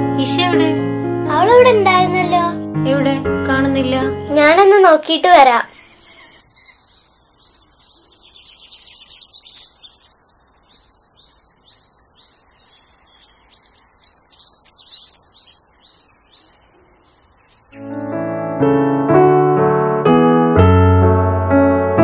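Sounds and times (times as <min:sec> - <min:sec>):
small birds chirping: 0:03.6 - 0:18.2.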